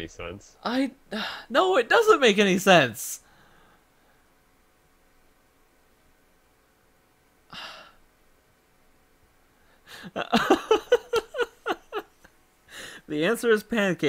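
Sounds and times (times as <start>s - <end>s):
person sighing: 7.5s - 8.0s
person laughing: 10.0s - 12.1s.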